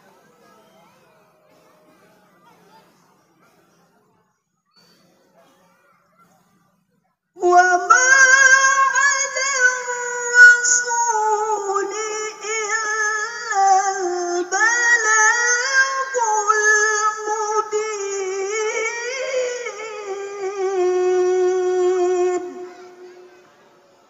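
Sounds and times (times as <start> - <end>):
woman reciting melodically: 7.4 - 23.4.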